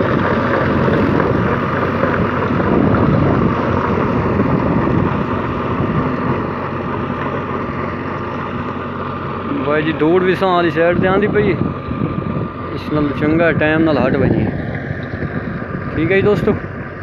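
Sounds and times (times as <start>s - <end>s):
wind on microphone: 0.0s - 6.5s, 10.8s - 17.0s
tractor diesel engine under load: 0.0s - 17.0s.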